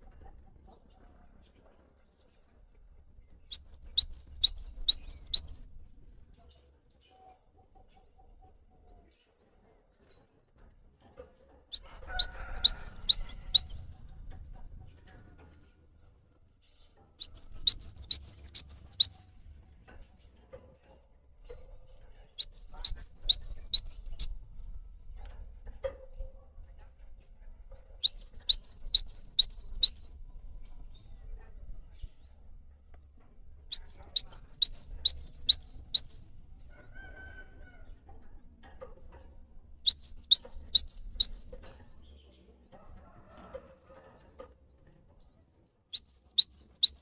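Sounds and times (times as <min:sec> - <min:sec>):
bird song with falling notes: 0:03.5 - 0:05.7, 0:11.8 - 0:13.9, 0:17.2 - 0:19.3, 0:22.4 - 0:24.4, 0:28.0 - 0:30.1, 0:33.7 - 0:36.2, 0:39.9 - 0:41.7, 0:46.0 - 0:47.0.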